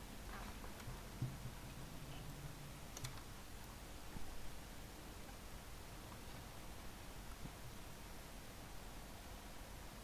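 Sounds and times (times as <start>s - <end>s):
faint low hum: 0.0s - 10.0s.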